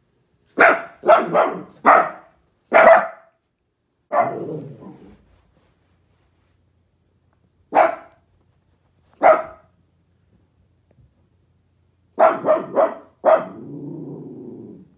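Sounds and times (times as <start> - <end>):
puppy barking: 0.5 - 3.4, 4.1 - 4.7, 7.7 - 8.2, 9.2 - 9.8, 12.2 - 13.7.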